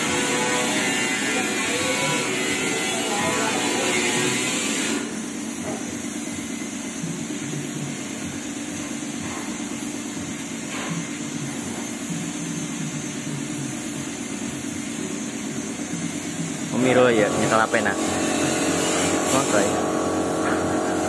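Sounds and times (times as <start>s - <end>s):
paint spray gun hissing: 13.7s - 21.0s.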